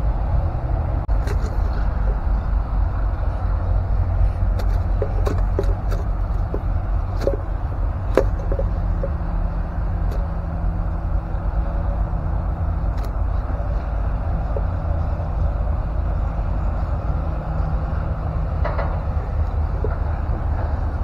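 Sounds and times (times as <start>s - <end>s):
clicks and crackles of handling plastic: 1.1s - 2.4s, 4.2s - 9.2s, 12.9s - 14.7s, 18.6s - 20.7s.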